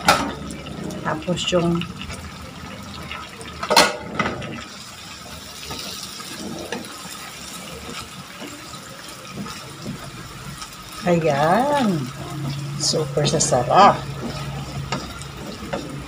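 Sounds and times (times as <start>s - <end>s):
sauce sizzling in a wok: 0.0s - 16.0s
spatula scraping a pan: 3.7s - 16.0s.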